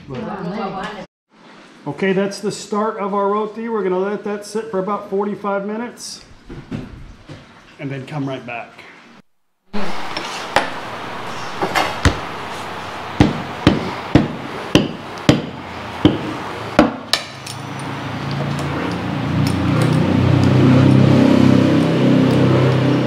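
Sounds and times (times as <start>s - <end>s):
steady low hum: 9.8s - 16.8s.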